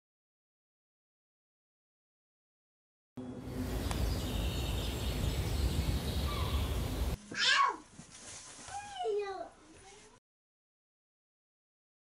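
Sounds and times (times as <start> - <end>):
wind buffeting microphone: 3.5 - 7.2.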